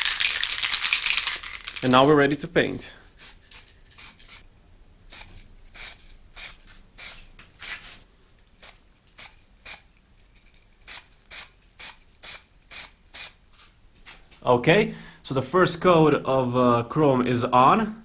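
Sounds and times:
spray paint hissing bursts: 0:03.2 - 0:04.4, 0:05.1 - 0:08.0, 0:08.6 - 0:09.9, 0:10.8 - 0:13.4.

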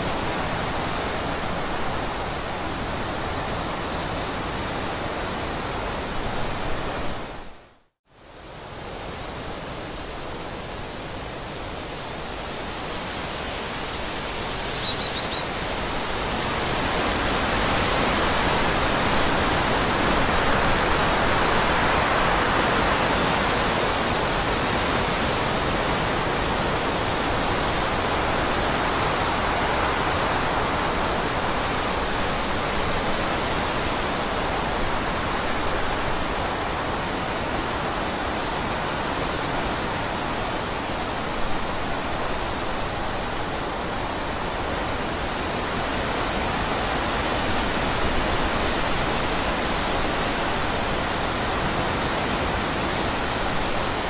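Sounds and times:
faint high bird chirps: 0:10.0 - 0:10.6, 0:14.6 - 0:15.5.

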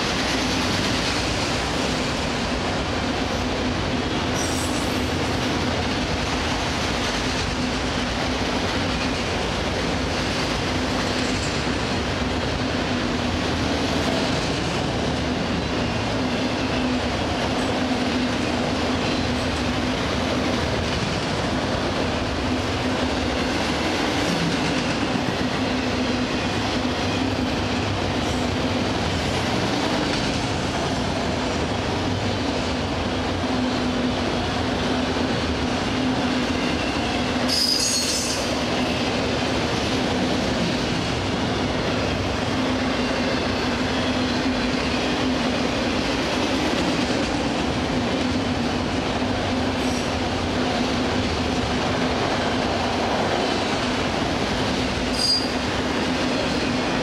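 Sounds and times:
train wheels rumbling on rail: 0:00.0 - 0:57.0
high wheel squeal: 0:36.7 - 0:38.5, 0:55.1 - 0:55.6.

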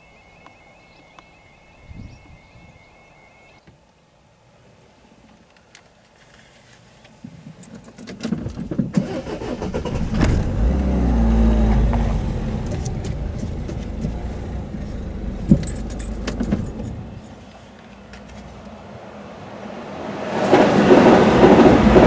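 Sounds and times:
vehicle engine and tyres: 0:05.4 - 0:22.0.

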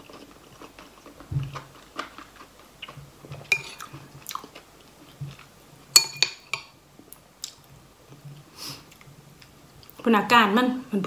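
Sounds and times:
quiet chewing: 0:00.0 - 0:05.5
metal spoon clinking ceramic bowl: 0:03.5 - 0:03.8, 0:06.0 - 0:06.7.

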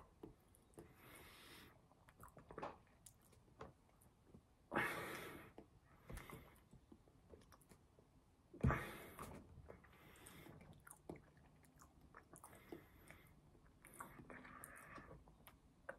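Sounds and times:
person chewing food: 0:09.2 - 0:15.9.

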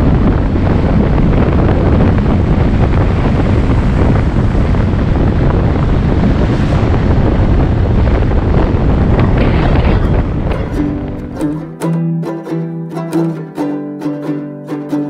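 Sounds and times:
wind buffeting microphone: 0:00.0 - 0:13.8.

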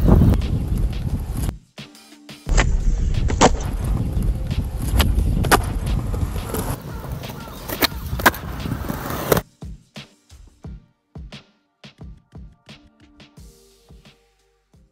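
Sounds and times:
skateboard wheels rolling: 0:03.4 - 0:09.4
skateboard clacks: 0:04.5 - 0:09.4.

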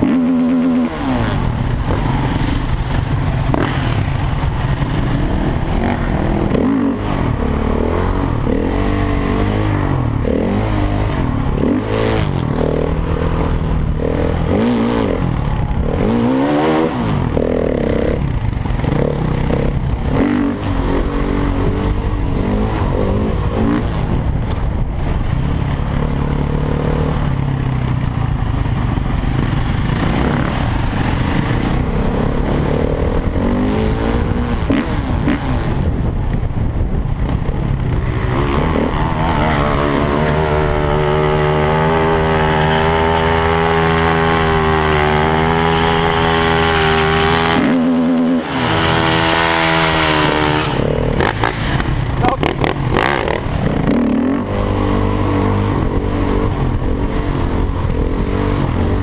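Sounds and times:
motorcycle engines revving: 0:00.0 - 0:59.0.

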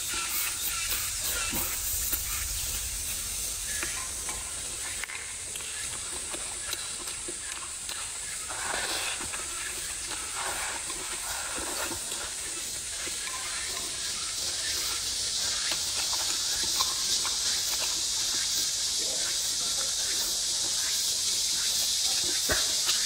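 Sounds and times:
background hiss: 0:00.0 - 0:23.0
chewing: 0:03.7 - 0:20.6.

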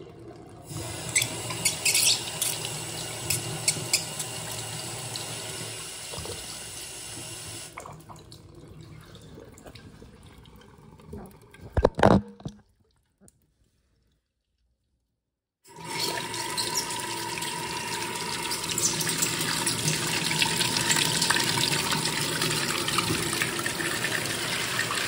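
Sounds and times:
toilet flushing: 0:00.0 - 0:11.7, 0:15.7 - 0:25.0
water trickling and dripping: 0:00.0 - 0:11.8.

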